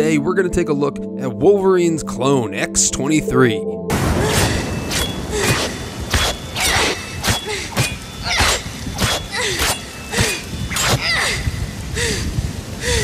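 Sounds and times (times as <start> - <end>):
heavy rain hiss: 3.9 - 13.0.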